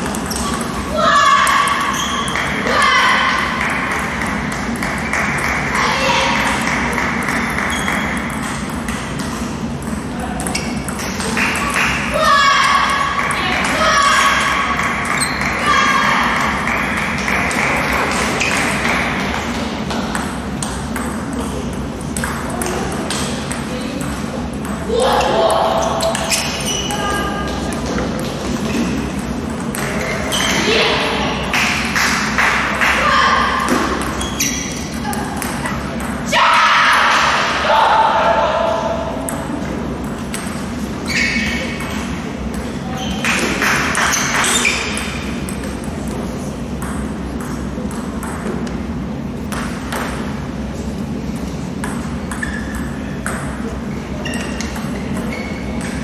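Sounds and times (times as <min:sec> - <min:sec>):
hall background noise: 0:00.0 - 0:56.0
steady background noise: 0:00.0 - 0:56.0
table tennis balls clicking: 0:06.4 - 0:12.1, 0:16.3 - 0:24.9.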